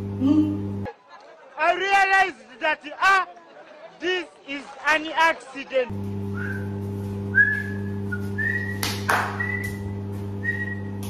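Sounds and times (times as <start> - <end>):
steady low hum: 5.9 - 11.0
woman whistling: 6.4 - 6.7, 7.3 - 8.8, 9.4 - 9.8, 10.4 - 10.9.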